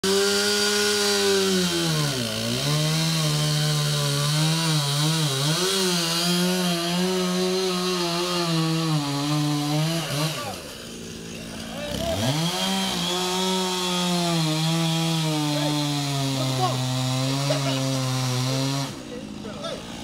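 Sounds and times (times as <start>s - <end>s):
chainsaw cutting wood: 0.0s - 20.0s.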